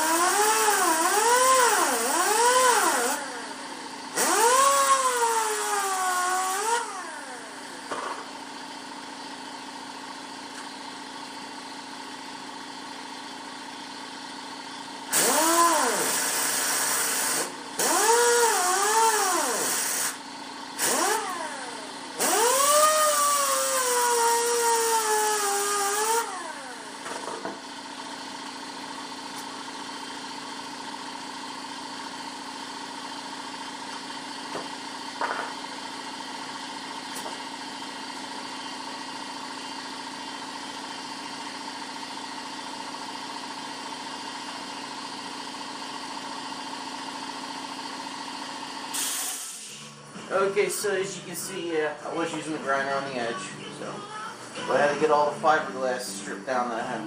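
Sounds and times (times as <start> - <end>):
electric grinder whining: 0.0 - 3.6, 4.2 - 7.8, 15.1 - 20.2, 20.8 - 27.0.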